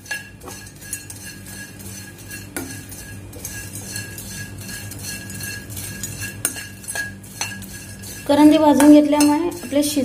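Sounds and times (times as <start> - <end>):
metal spatula scraping a pan: 0.0 - 10.0
spatula knocking on pan: 8.4 - 9.7.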